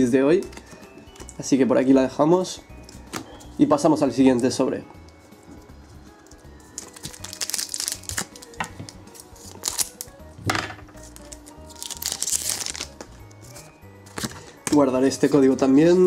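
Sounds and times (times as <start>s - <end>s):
quiet background music: 0.0s - 16.0s
foil wrapper crinkling: 6.6s - 10.1s, 11.0s - 14.3s.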